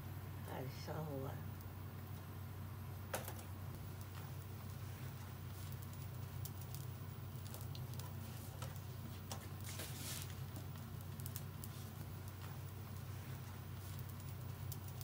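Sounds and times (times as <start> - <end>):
steady low hum: 0.0 - 15.0
faint clicks and light crackling: 3.1 - 15.0.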